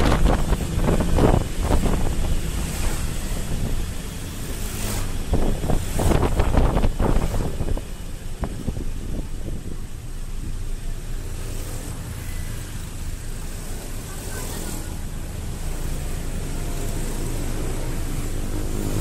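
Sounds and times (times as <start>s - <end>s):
wind noise on microphone: 0.0s - 11.2s
engine and tyre rumble: 0.0s - 19.0s.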